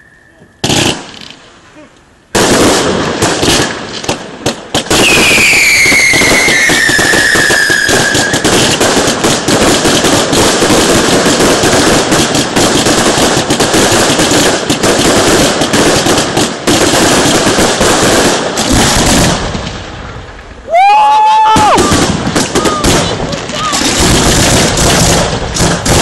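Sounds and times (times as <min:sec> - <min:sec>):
firework falling whistle: 0:00.0 - 0:00.6, 0:05.0 - 0:08.5
fireworks crackling and banging: 0:00.0 - 0:26.0.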